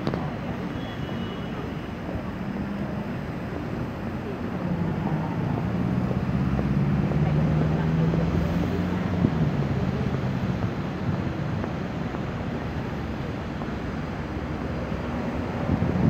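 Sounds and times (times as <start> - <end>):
road traffic noise: 0.0 - 16.0
vehicle engine hum: 0.0 - 16.0
wind on microphone: 4.7 - 16.0.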